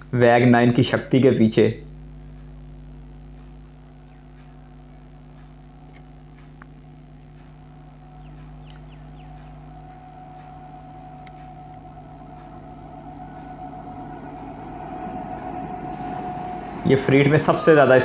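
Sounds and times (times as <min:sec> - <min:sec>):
electric locomotive hum: 0:00.0 - 0:18.0
bird chirps: 0:07.9 - 0:13.5.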